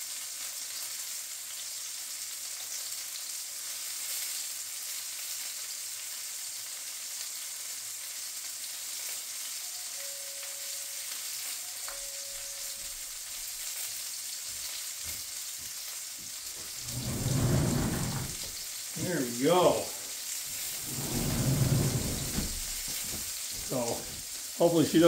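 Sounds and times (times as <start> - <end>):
sausages sizzling in a frying pan: 0.0 - 21.0, 22.4 - 25.0.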